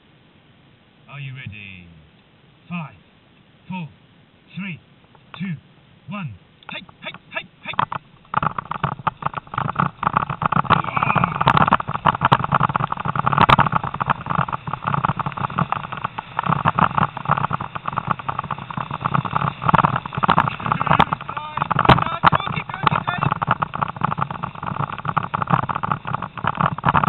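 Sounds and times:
camera rattling and knocking: 6.6 - 27.0
wind noise: 6.7 - 27.0.

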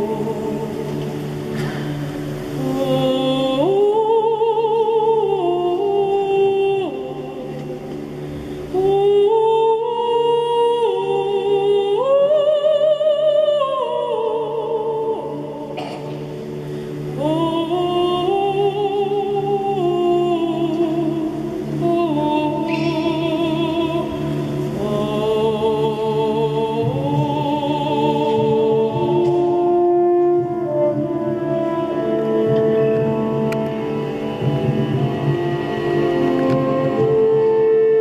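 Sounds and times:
soft sustained accompaniment: 0.0 - 38.0
soprano singing with vibrato: 0.0 - 38.0.

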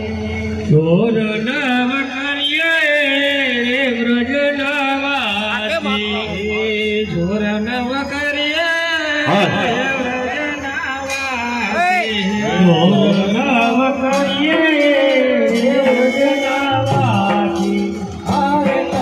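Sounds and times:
instrumental backing: 0.0 - 19.0
person singing ornamented melody: 4.7 - 19.0.

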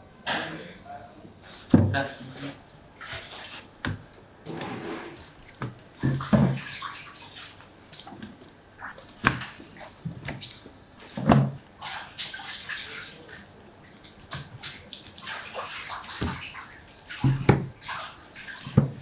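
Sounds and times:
wet slaps and sloshing: 3.0 - 4.1, 5.3 - 19.0.

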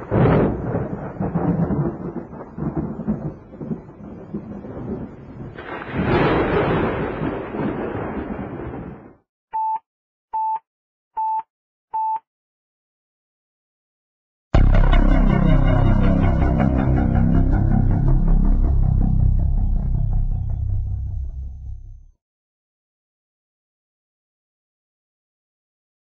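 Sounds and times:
short electronic beeps: 9.6 - 9.8, 10.4 - 10.6
long rumbling noise: 14.6 - 22.1.

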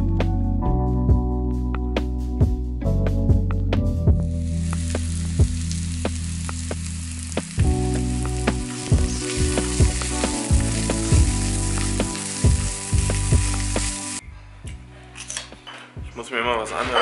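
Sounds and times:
background music with a beat: 0.0 - 14.9
eggs sizzling in a frying pan: 4.4 - 14.2.

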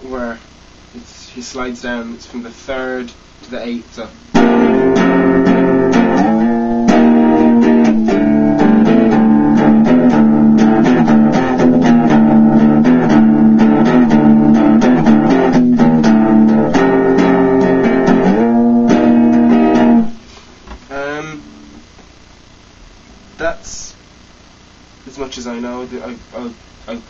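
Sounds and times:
electric guitar rock riff: 4.2 - 23.8.

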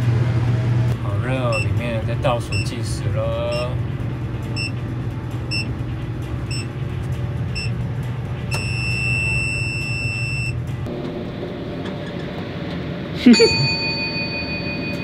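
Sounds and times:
machine low hum: 0.0 - 15.0
long beep: 8.6 - 10.6.

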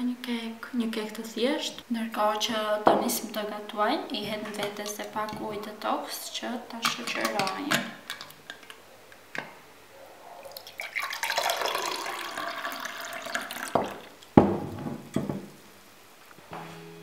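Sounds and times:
water pouring into a glass: 10.5 - 14.2.

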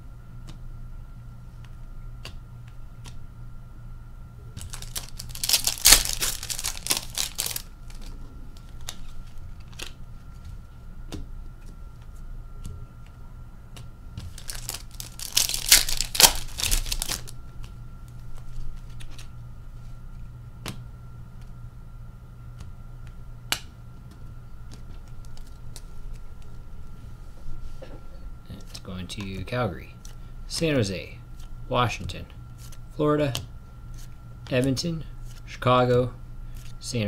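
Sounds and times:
card pack wrappers tearing: 4.6 - 9.0, 14.2 - 17.4
cards clicking and tapping: 4.6 - 9.0, 13.7 - 17.7.

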